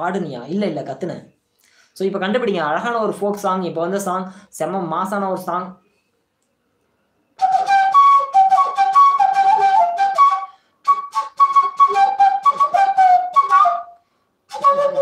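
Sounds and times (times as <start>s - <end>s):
breathy flute melody: 7.3s - 15.0s.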